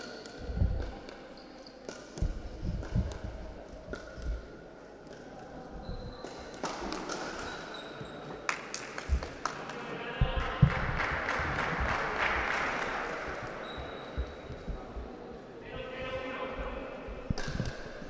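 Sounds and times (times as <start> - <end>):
shoe squeaks: 0.1 - 3.4, 5.8 - 6.6, 7.4 - 8.4, 13.5 - 15.0
dull thumps: 0.4 - 1.0, 2.2 - 4.4, 10.2 - 16.0, 16.6 - 18.0
paddles striking ball: 17.1 - 18.0.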